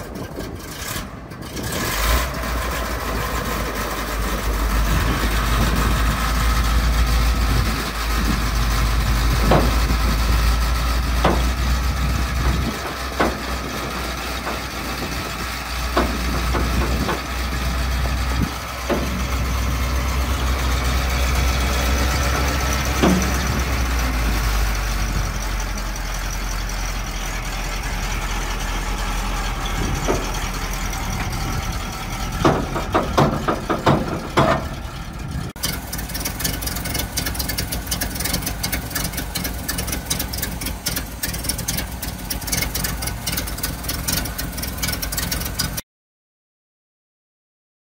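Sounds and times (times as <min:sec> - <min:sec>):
truck engine running: 0:00.0 - 0:45.8
sharp metal clunks: 0:23.0 - 0:23.5, 0:32.4 - 0:34.7.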